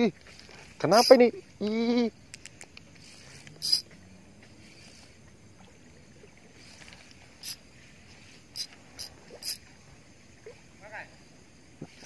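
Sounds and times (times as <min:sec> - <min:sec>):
faint outdoor background: 0:00.0 - 0:12.0.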